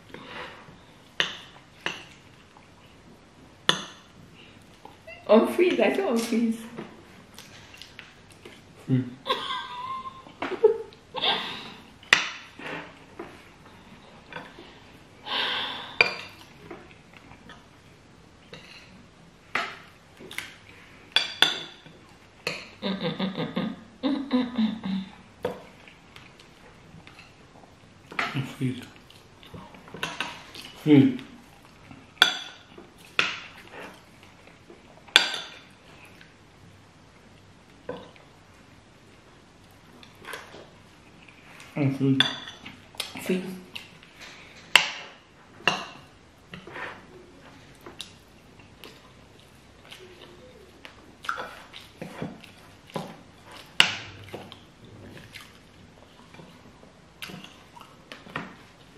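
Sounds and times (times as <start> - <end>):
cutlery clinking on plates: 21.2 - 21.8, 32.2 - 33.4, 35.1 - 35.7, 42.2 - 42.8.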